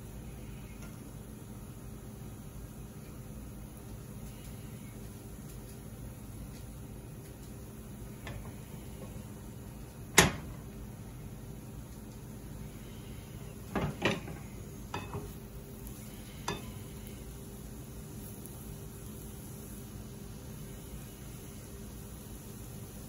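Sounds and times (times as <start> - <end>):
mushrooms sizzling in a pan: 0.0 - 23.0.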